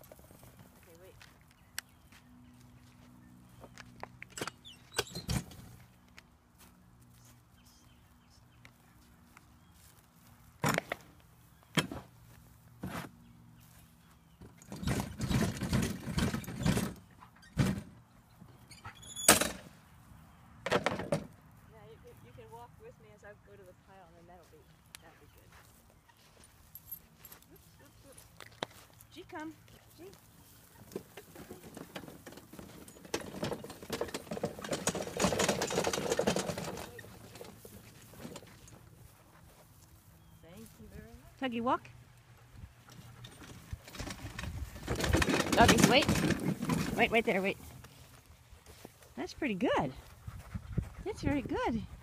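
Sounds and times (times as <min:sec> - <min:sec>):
footsteps in dry grass: 0:00.0 - 0:04.2, 0:05.7 - 0:14.5, 0:23.8 - 0:32.9, 0:36.9 - 0:41.4, 0:46.5 - 0:52.0
plastic wagon rattling and scraping: 0:14.4 - 0:18.0, 0:30.5 - 0:38.9, 0:42.9 - 0:47.9.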